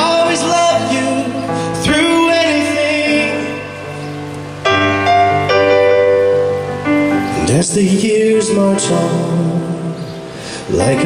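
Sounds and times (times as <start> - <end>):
man singing into microphone: 0.0 - 4.0, 7.3 - 11.0
piano chords: 0.0 - 11.0.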